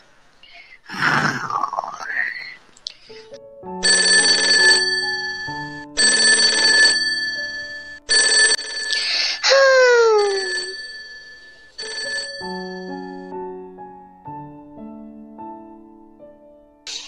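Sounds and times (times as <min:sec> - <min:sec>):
alarm clock bell ringing: 0:03.8 - 0:13.3.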